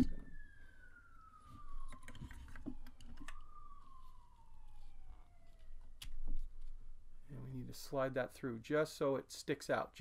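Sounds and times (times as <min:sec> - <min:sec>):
distant siren wailing: 0:00.0 - 0:08.2.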